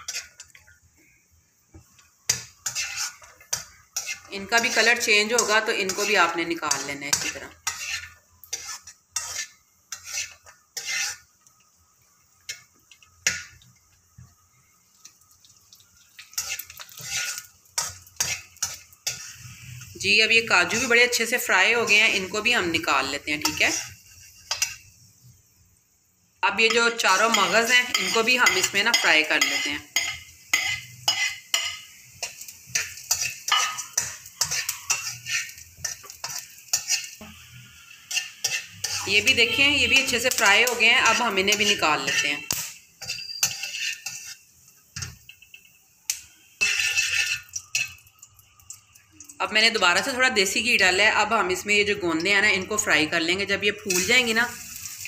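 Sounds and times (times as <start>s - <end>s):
metal spatula scraping pan: 0.0s - 0.6s, 2.2s - 11.5s, 12.4s - 13.6s, 16.3s - 24.9s, 26.6s - 45.2s, 46.4s - 48.0s, 53.8s - 54.9s
spatula clinking on pan: 26.7s - 37.2s, 39.9s - 44.4s.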